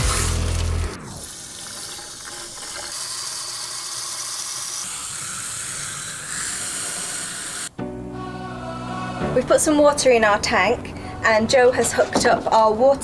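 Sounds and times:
hose water rushing into tank: 0.0 - 7.7.

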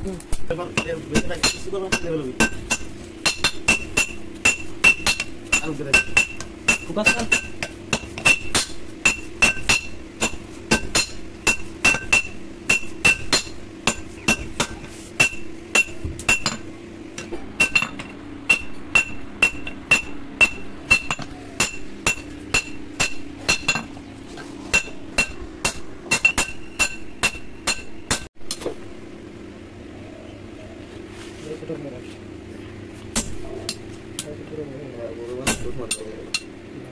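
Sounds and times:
hammer striking anvil: 0.8 - 24.0, 24.7 - 28.6, 35.4 - 36.6.

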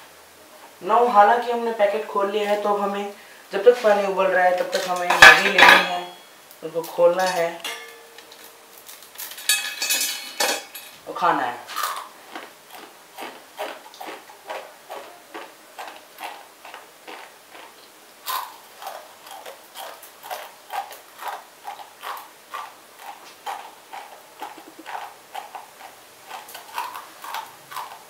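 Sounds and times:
dry noodles crunching: 11.7 - 28.0.

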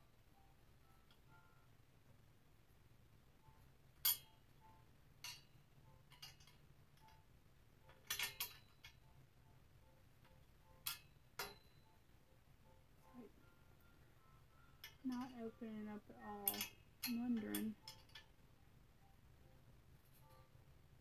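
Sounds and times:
metal clinks: 7.8 - 9.1, 10.8 - 12.0, 16.2 - 18.4.

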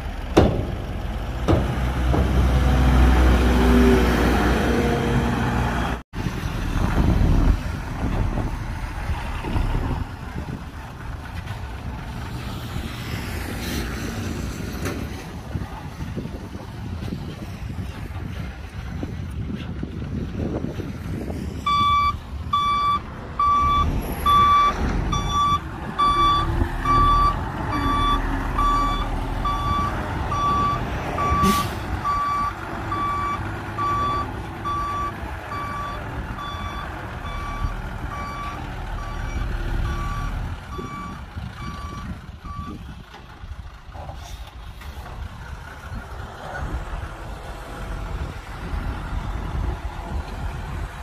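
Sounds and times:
diesel engine rumble: 0.0 - 51.0
truck reversing alarm beeping: 21.7 - 42.8.

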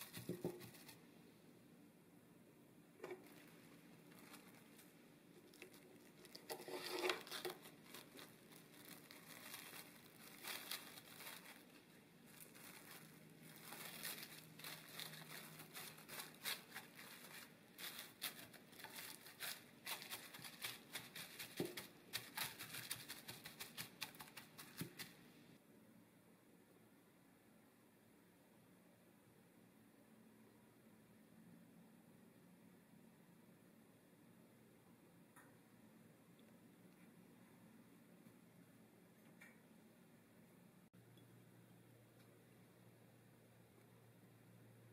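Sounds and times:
plastic wrap crinkling: 0.0 - 1.0, 3.0 - 25.3.

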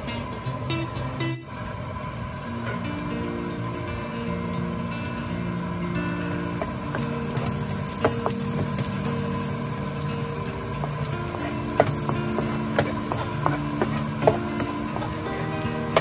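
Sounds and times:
soft background music: 2.4 - 16.0
garlic sizzling in oil: 2.7 - 16.0
wooden spoon tapping pan: 6.5 - 16.0.

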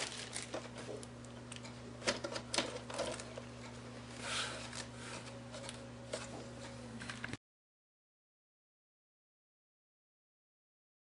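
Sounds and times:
low electrical hum: 0.0 - 7.4.

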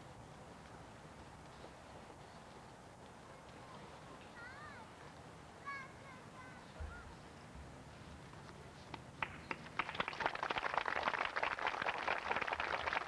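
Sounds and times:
outdoor crowd applauding: 9.2 - 13.0.

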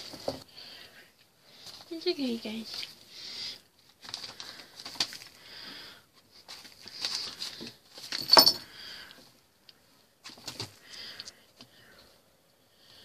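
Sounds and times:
kittens rustling on newspaper: 1.5 - 8.2, 10.2 - 10.9.

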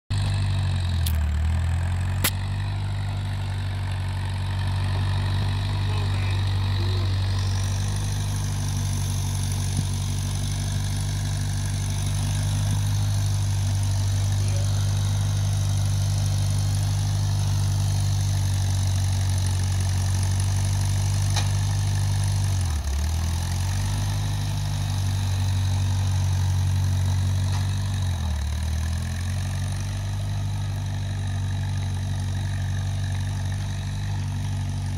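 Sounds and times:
tractor engine running: 0.1 - 34.9.

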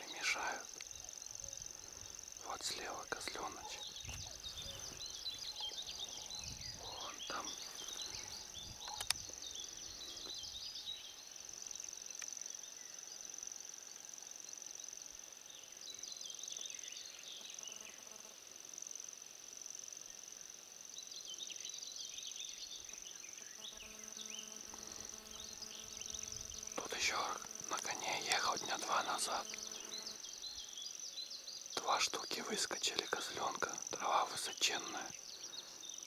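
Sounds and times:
insects trilling: 0.0 - 36.0
faint click: 8.8 - 9.4.

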